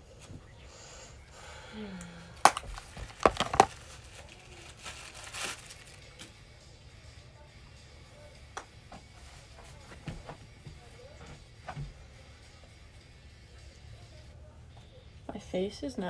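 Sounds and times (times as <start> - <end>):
crinkling rustles: 2.4 - 6.3.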